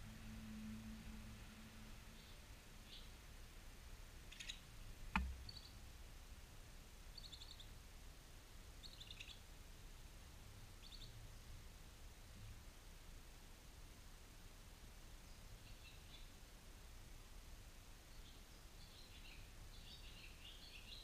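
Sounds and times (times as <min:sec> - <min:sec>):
sharp knock: 0:05.1 - 0:05.5.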